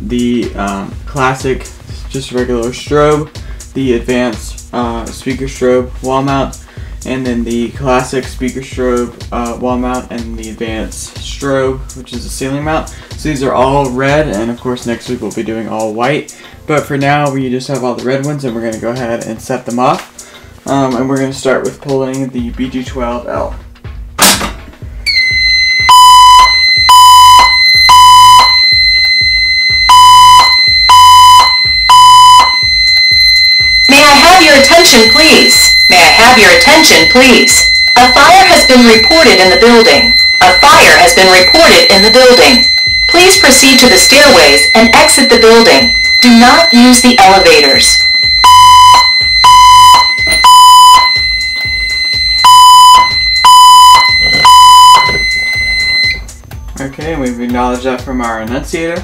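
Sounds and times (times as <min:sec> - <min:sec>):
fire alarm beeps: 0:25.0 - 0:56.4
steady high-pitched tone: 0:25.1 - 0:55.5.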